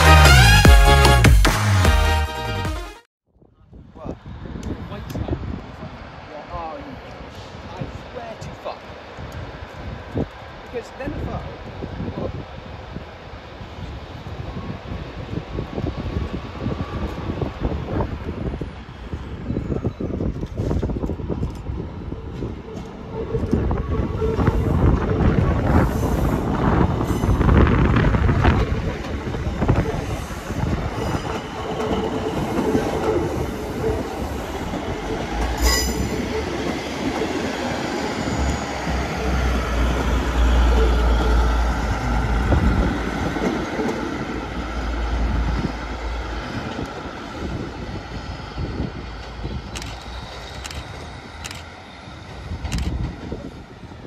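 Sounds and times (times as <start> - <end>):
diesel train engines running: 4.6 - 54.0
train wheels rumbling over rails: 4.6 - 54.0
sharp clicks: 49.7 - 51.7.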